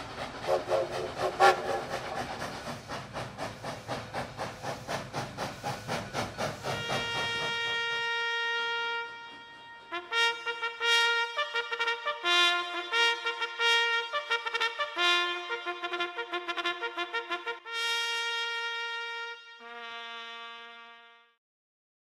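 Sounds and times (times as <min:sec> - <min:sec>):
locomotive whistle: 0:00.0 - 0:02.2, 0:06.4 - 0:21.3
steam locomotive chuffing: 0:00.0 - 0:13.6
trumpet: 0:06.7 - 0:21.4.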